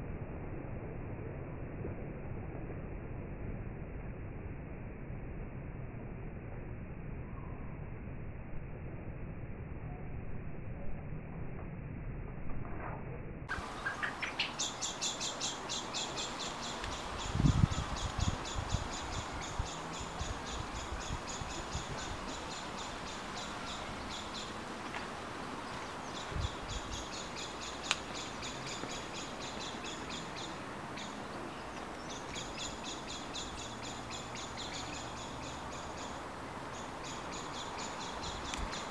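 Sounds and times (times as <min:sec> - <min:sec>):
steady background hiss: 0:13.5 - 0:38.9.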